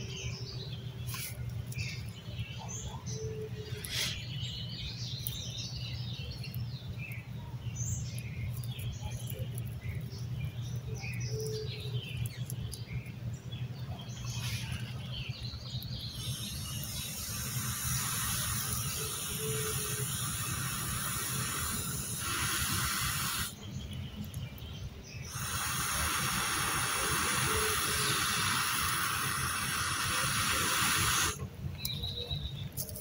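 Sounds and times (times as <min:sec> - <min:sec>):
breath blowing airy hiss: 0:03.8 - 0:04.3, 0:16.0 - 0:23.6, 0:25.2 - 0:31.4.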